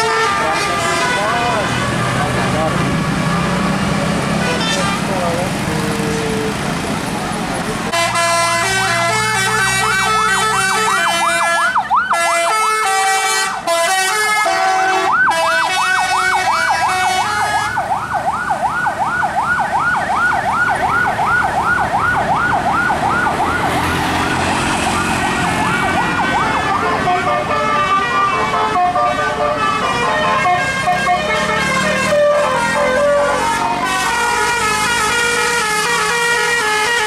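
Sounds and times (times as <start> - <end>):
bus horn siren-like warble: 0.0 - 3.6, 4.4 - 5.4, 7.9 - 37.0
horn playing tune: 7.9 - 17.8, 25.9 - 37.0.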